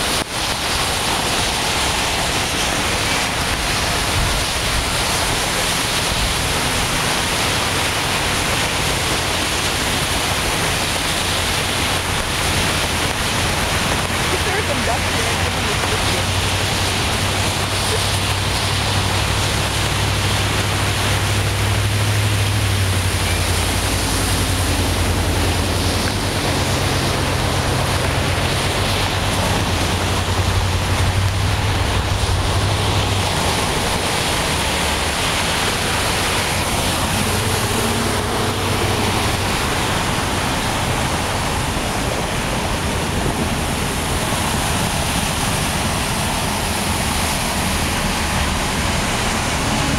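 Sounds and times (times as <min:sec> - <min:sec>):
low engine hum: 0:00.0 - 0:49.9
vehicles driving through floodwater: 0:00.0 - 0:49.9.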